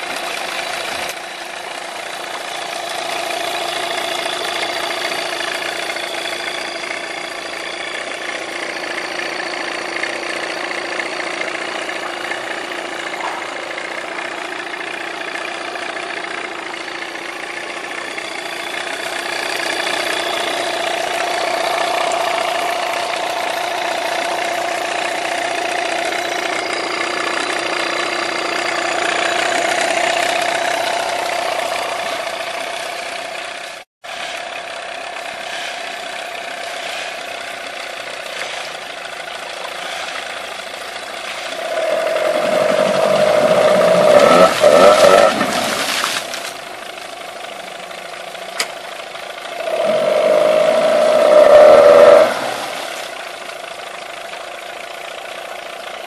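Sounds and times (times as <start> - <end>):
outboard motor running: 0.0 - 56.0.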